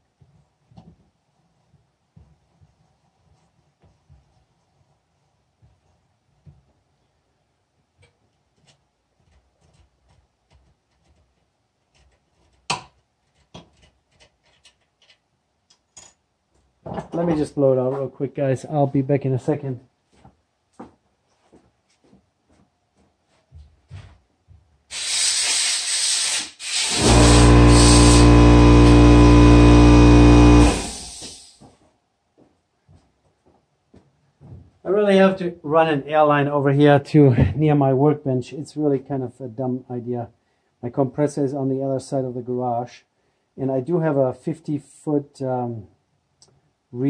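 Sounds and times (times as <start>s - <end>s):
air blow gun hissing: 24.9s - 31.6s
air compressor motor hum: 26.6s - 31.6s.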